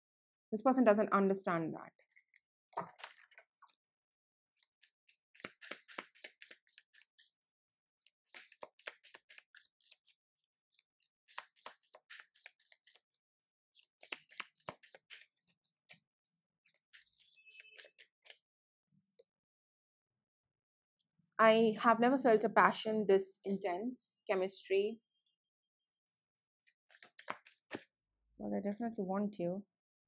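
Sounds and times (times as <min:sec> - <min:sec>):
cards being shuffled: 0:04.6 - 0:07.4, 0:13.8 - 0:16.0, 0:26.9 - 0:28.0.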